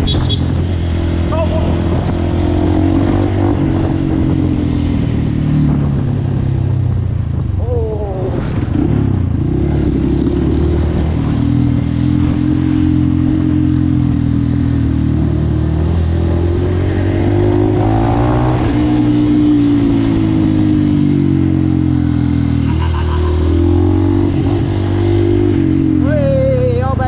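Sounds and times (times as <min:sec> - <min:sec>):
dirt bike engine running: 0:19.0 - 0:27.0.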